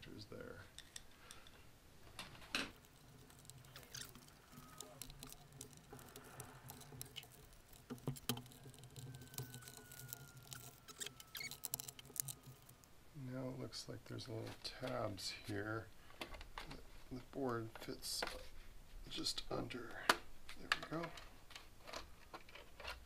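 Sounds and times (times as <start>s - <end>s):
plastic parts clicking and scratching: 0.7s - 13.0s, 20.0s - 23.0s.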